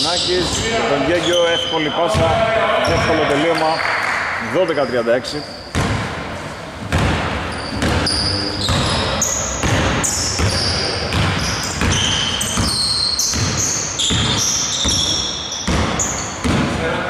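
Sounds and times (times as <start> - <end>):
sneakers squeaking on floor: 0.0 - 4.0, 4.7 - 16.9
basketball bouncing on hardwood: 5.7 - 6.1, 6.8 - 8.1, 9.6 - 15.1, 15.7 - 16.7.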